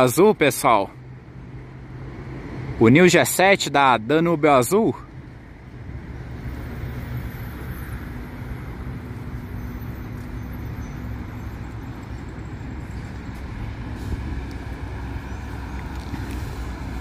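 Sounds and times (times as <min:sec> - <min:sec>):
coach diesel engine droning: 0:05.8 - 0:17.0.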